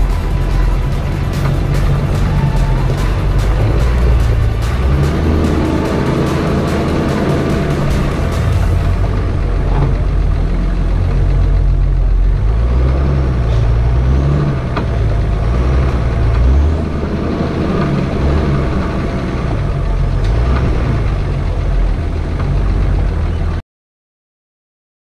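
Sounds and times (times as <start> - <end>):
engine running at low revs: 0.0 - 23.6.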